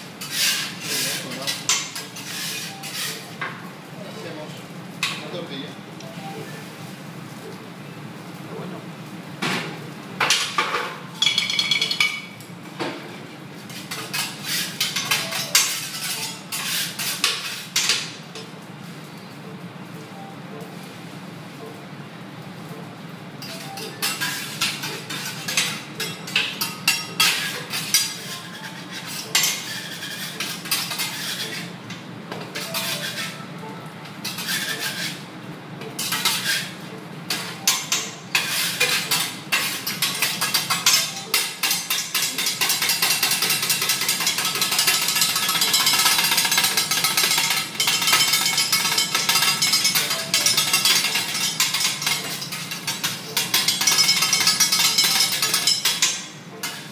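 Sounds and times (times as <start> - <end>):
metal spatulas clacking on griddle: 37.3 - 56.9.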